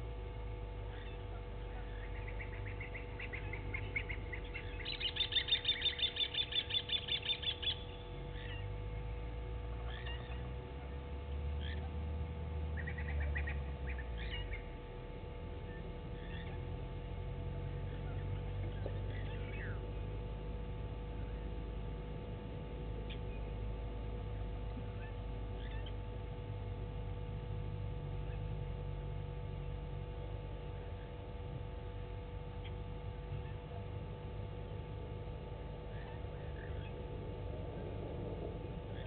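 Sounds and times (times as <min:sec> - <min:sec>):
steady low hum: 0:00.0 - 0:39.0
lapwing calling: 0:00.9 - 0:11.0, 0:11.6 - 0:12.0, 0:12.7 - 0:14.8, 0:15.6 - 0:16.8, 0:17.5 - 0:30.0, 0:32.5 - 0:39.0.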